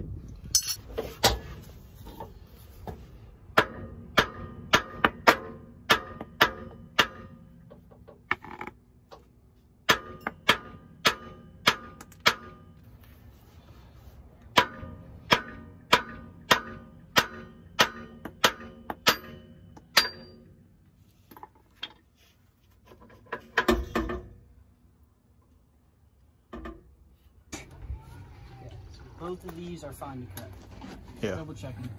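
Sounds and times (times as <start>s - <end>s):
hammer striking metal: 3.6s - 7.4s, 9.8s - 12.7s, 14.5s - 20.5s.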